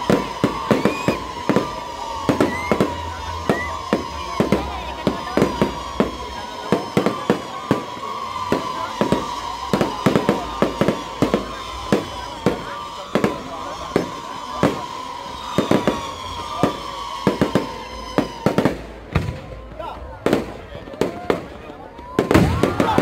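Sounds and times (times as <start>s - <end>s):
short rising whistles: 0.0s - 4.6s
steady whistling tone: 0.0s - 18.6s
fireworks bangs and crackling: 0.0s - 23.0s.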